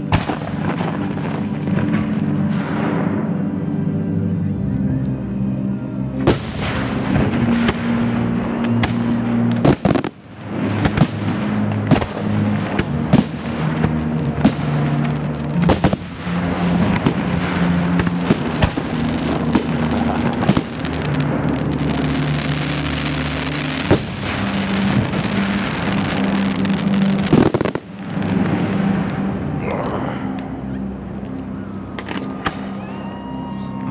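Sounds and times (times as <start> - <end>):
fireworks bursting with sharp bangs: 0.0 - 3.5, 6.2 - 29.6
dense steady background noise: 0.0 - 33.9.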